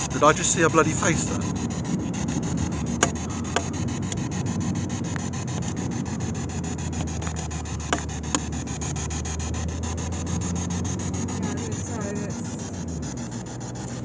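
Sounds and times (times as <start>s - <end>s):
car interior drone: 0.0s - 14.0s
microphone handling rubbing: 0.0s - 14.0s.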